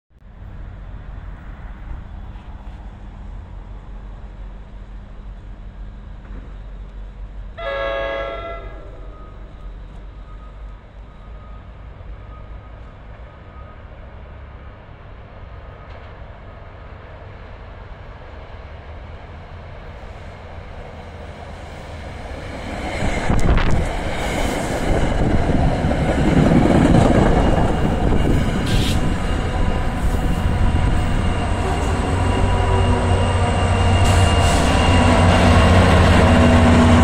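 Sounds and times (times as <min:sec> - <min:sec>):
train rumbling: 0:00.1 - 0:37.0
train horn chord: 0:07.6 - 0:09.3, 0:31.5 - 0:33.4.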